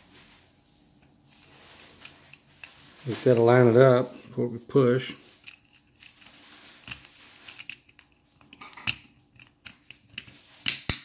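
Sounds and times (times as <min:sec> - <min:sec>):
plastic clicks and scraping: 0:05.4 - 0:11.0.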